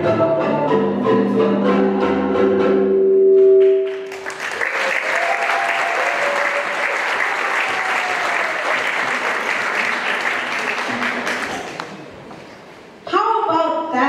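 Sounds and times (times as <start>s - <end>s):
audience applauding: 3.6s - 12.1s.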